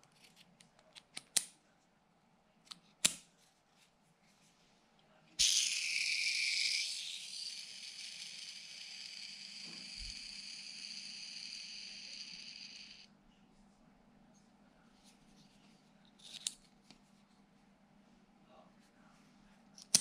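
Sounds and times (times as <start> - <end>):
metal spinner ringing whir: 5.4 - 13.1.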